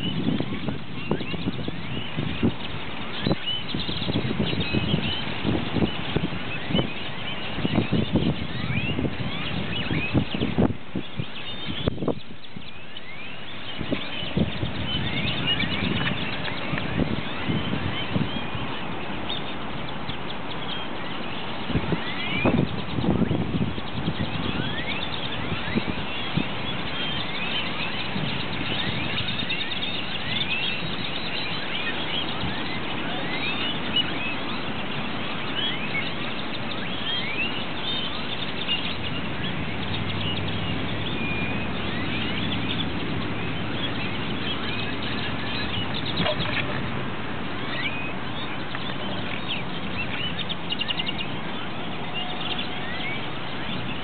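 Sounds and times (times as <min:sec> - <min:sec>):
flock of birds chirping: 0:00.0 - 0:54.0.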